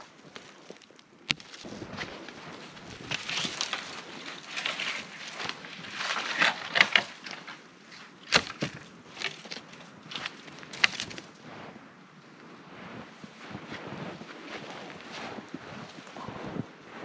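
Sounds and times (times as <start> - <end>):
twigs snapping: 0.0 - 11.3
dry wood cracking and splintering: 0.0 - 11.4.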